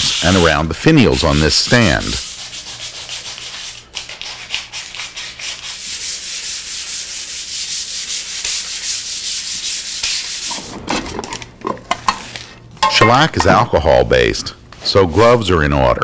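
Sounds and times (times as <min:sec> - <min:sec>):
sandpaper rasping on wood: 0:00.0 - 0:10.6.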